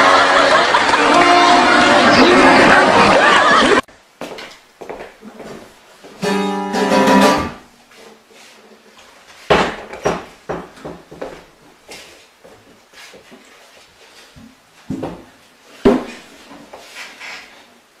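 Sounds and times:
burst of voices: 0.0 - 3.8
acoustic guitar strum: 6.2 - 7.7
sharp knocks and thumps: 9.5 - 11.3.

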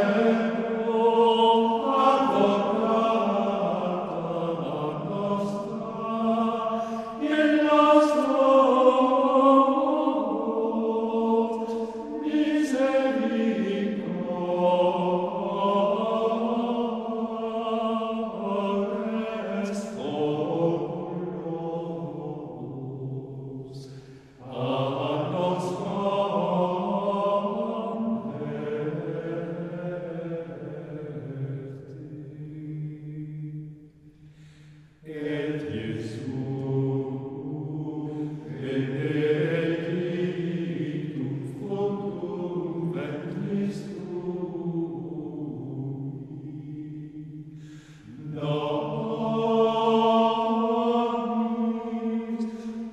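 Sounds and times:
slow sung vocal chant: 0.0 - 52.9.

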